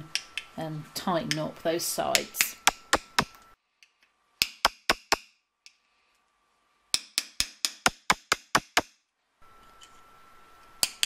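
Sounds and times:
hammer tapping metal punch: 0:06.9 - 0:08.8.

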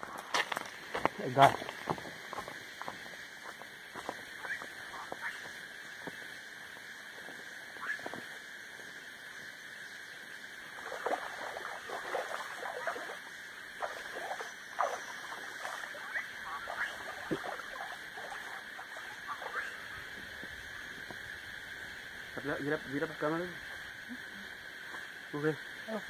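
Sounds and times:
steady high hiss: 0:00.0 - 0:26.0
water splashing: 0:10.6 - 0:20.9.

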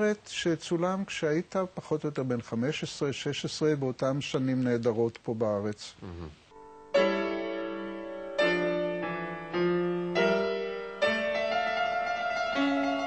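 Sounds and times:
piano playing slow chords: 0:06.5 - 0:13.0.

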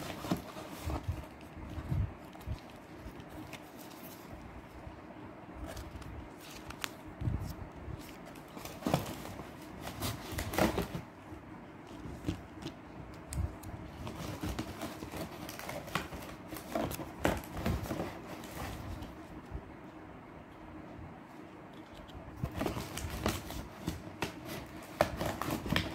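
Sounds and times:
cardboard boxes clicking and rustling: 0:00.0 - 0:01.4, 0:08.3 - 0:11.1, 0:14.0 - 0:19.1, 0:22.4 - 0:25.9.

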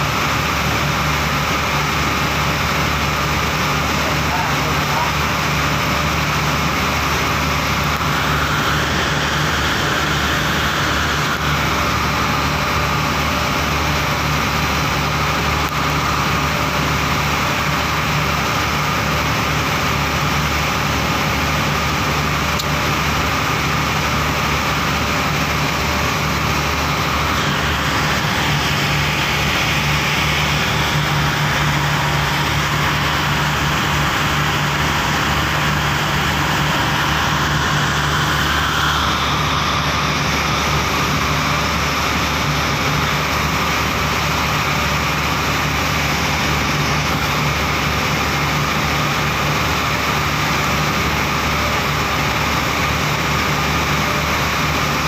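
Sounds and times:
boat engine running steadily: 0:00.0 - 0:55.0
water rushing along hull: 0:00.0 - 0:55.0.

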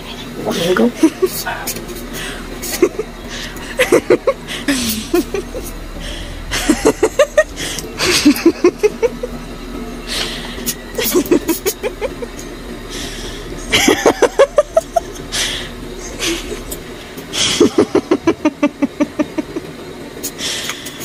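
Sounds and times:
stifled giggling: 0:00.6 - 0:19.8
hissing breaths: 0:01.3 - 0:13.9, 0:14.8 - 0:18.1, 0:20.2 - 0:21.0.

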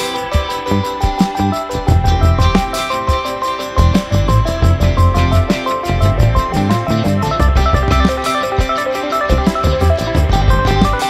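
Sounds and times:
background music with bass: 0:00.0 - 0:11.0.

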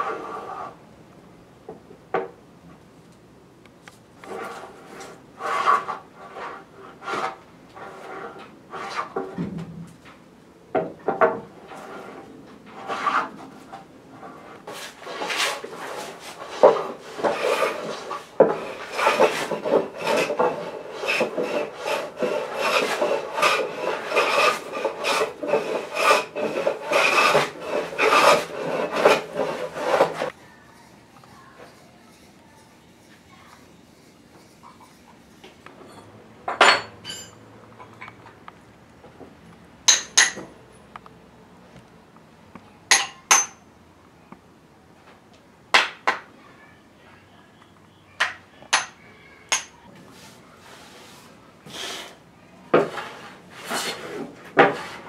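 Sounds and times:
hand plane shaving wood: 0:04.2 - 0:09.3, 0:11.6 - 0:30.9, 0:52.8 - 0:55.0.

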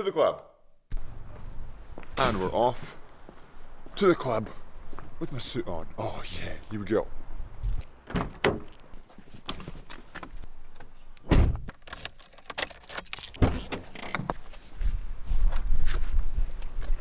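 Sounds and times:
car door thumping shut: 0:11.3 - 0:11.7
keys jangling: 0:11.9 - 0:13.4.

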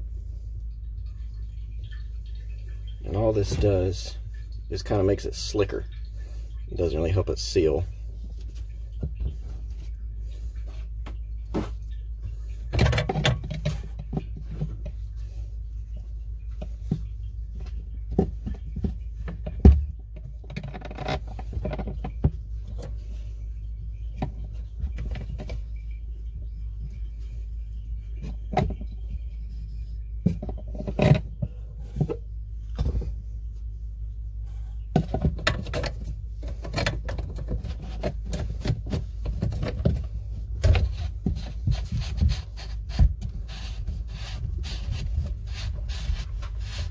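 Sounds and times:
steady low hum: 0:00.0 - 0:46.9
plastic drain parts clicking and rubbing: 0:10.6 - 0:15.3, 0:15.9 - 0:23.1, 0:23.9 - 0:25.9, 0:28.1 - 0:33.2, 0:34.9 - 0:46.9.

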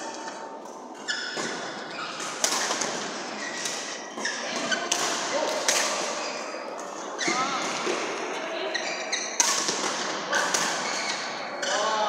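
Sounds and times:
shoe squeak on court floor: 0:01.0 - 0:02.8, 0:03.4 - 0:04.9, 0:07.2 - 0:07.6, 0:08.7 - 0:09.5, 0:10.4 - 0:11.9
racket smacks on shuttlecock: 0:02.2 - 0:03.8.

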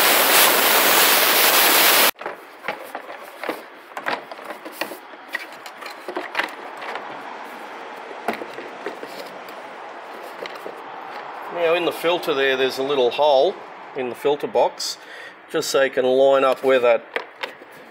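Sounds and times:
air blowgun hissing: 0:00.0 - 0:02.1
plastic parts clicking and knocking: 0:02.2 - 0:07.1, 0:08.2 - 0:09.3, 0:17.0 - 0:17.8.

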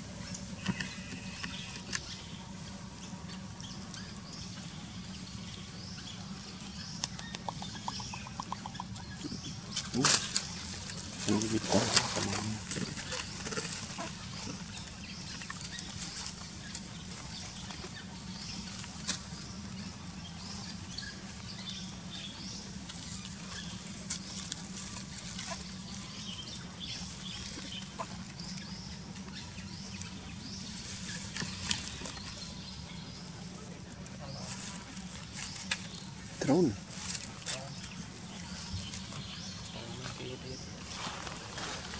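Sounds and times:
steady low hum: 0:00.0 - 0:41.9
sharp ticks: 0:07.0 - 0:09.0.

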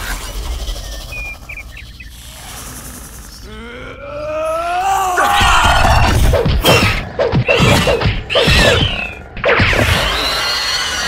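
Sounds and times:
creature cries: 0:03.4 - 0:06.8
cartoon punches and crashes: 0:05.4 - 0:10.6.

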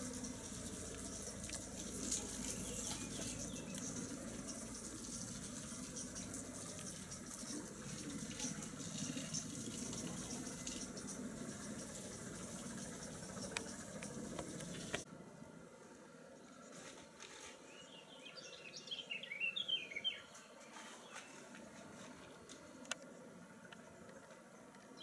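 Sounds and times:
helicopter rotor noise: 0:00.0 - 0:15.0.

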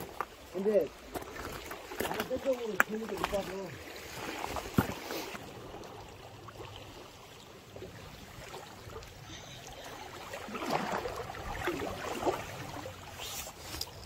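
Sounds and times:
water lapping among rocks: 0:00.0 - 0:14.0
rustles: 0:13.1 - 0:14.0.

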